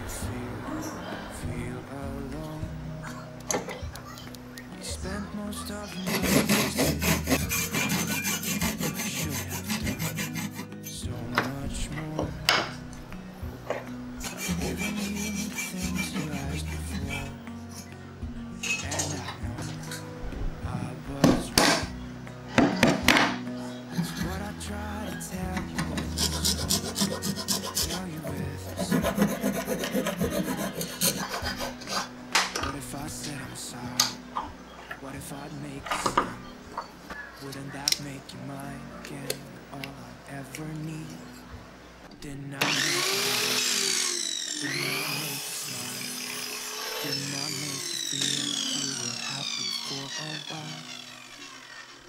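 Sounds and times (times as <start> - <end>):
steel file rasping on wood: 6.0 - 10.8, 14.2 - 17.3, 25.8 - 32.1
hand saw cutting wood: 6.0 - 11.0, 14.2 - 17.3, 25.6 - 32.2, 42.6 - 52.0.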